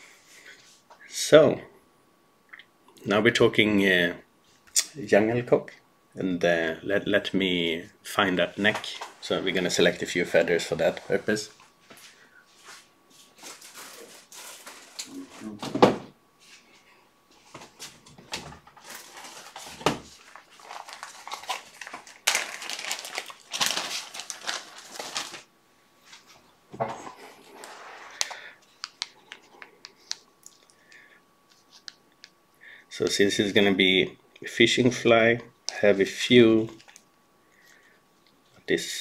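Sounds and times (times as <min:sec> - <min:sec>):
plastic bags rustling: 0:13.2 - 0:15.6, 0:17.5 - 0:25.5.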